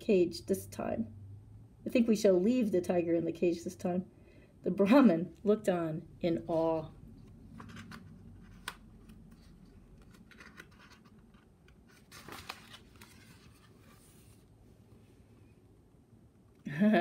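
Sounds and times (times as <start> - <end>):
paper page rustling: 7.5 - 14.5.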